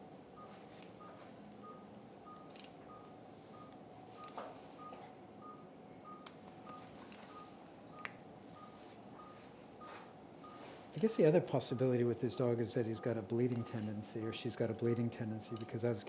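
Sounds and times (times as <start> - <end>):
patient monitor beeping: 0.0 - 16.0
surgical instruments clicking: 2.3 - 2.8, 6.2 - 7.4, 10.8 - 11.2, 13.4 - 14.0, 14.6 - 15.8.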